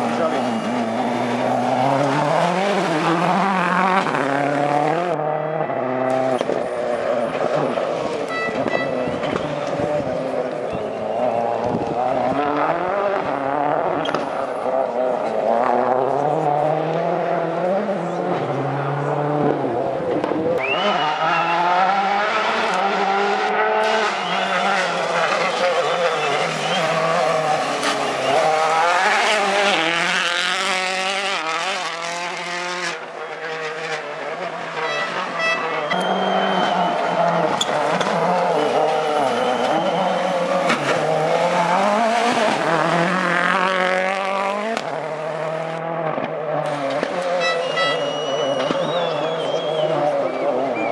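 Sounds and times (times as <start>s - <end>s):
rally car engine revving: 0.0s - 50.9s.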